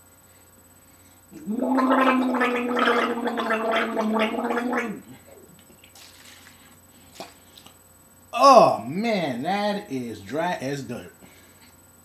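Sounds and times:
man gargling: 1.4 - 5.6.

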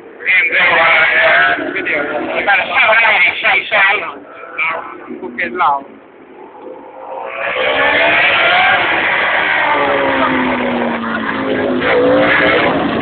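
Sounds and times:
racing motorcycles passing by: 6.4 - 13.0.

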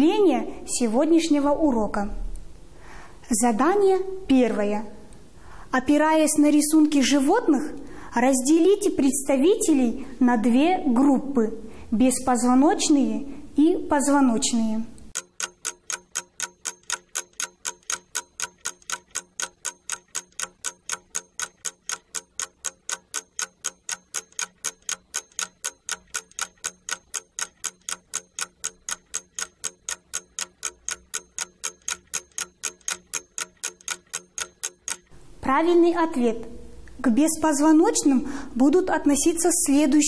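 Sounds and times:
clock ticking: 15.0 - 35.2.

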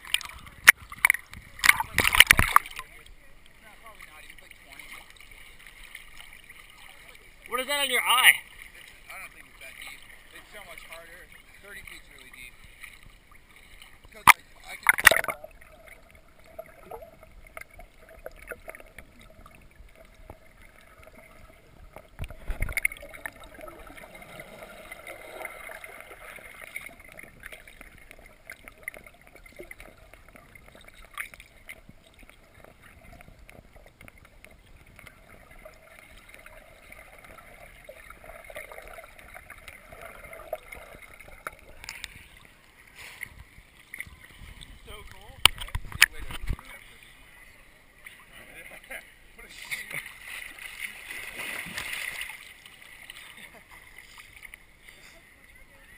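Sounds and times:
water splash: 0.0 - 3.1, 3.9 - 46.9, 48.5 - 54.6
muffled underwater watery hiss: 41.6 - 45.0, 53.2 - 55.9.

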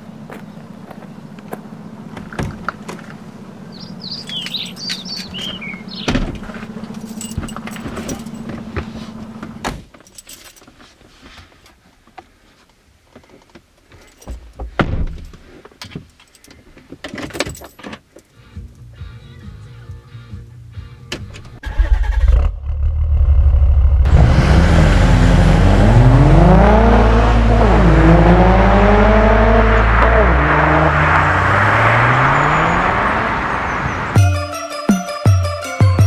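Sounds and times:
birds chirping: 0.0 - 7.4, 32.2 - 34.2
keys jangling: 6.8 - 8.5, 10.0 - 10.7
low hum: 21.7 - 30.7.

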